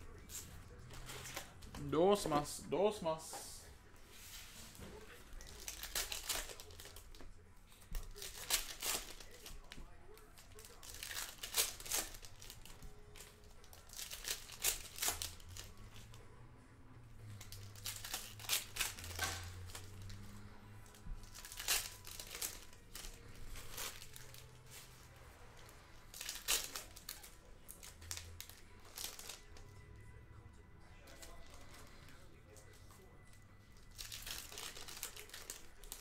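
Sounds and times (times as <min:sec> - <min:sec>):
cards being handled: 0:00.0 - 0:02.5, 0:04.1 - 0:16.4, 0:17.2 - 0:29.8
foil wrappers crinkling and tearing: 0:04.2 - 0:16.3, 0:17.2 - 0:29.8, 0:31.0 - 0:36.0.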